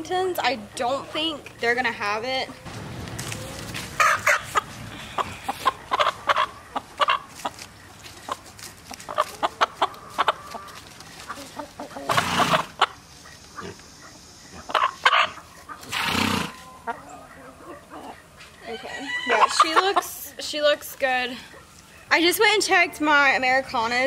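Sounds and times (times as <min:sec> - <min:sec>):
chickens clucking: 0:00.2 - 0:23.5
rustling: 0:02.7 - 0:05.8.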